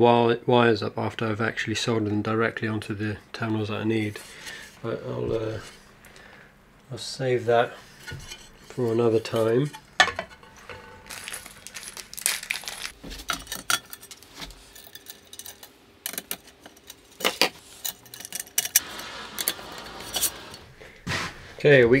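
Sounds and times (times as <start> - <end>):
small metal screws clinking: 10.8 - 18.8.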